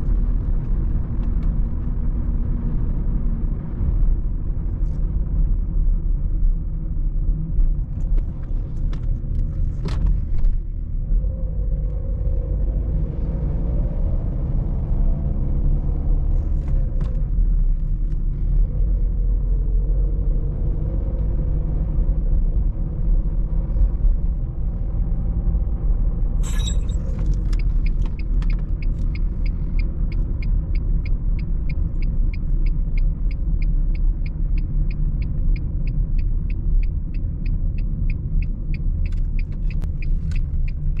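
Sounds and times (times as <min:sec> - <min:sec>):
diesel engine and road rumble: 0:00.0 - 0:41.0
turn signal ticking: 0:26.6 - 0:41.0.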